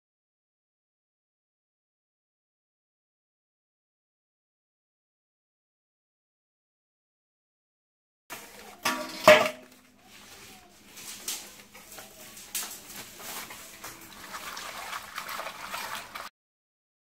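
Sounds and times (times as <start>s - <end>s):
hands washing fish in water: 9.9s - 16.3s.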